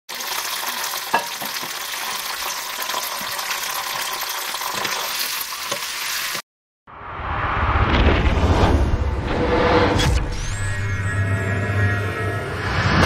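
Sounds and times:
hot oil sizzling and crackling: 0.1 - 6.4.

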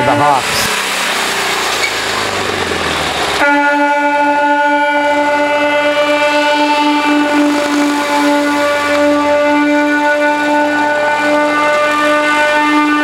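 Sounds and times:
wind and road noise: 0.0 - 13.0
air horn long note: 3.4 - 13.0.

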